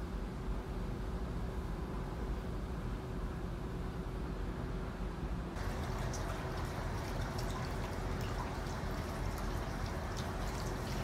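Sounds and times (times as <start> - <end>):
water dripping: 5.6 - 11.0
water trickling and splashing: 5.6 - 11.0.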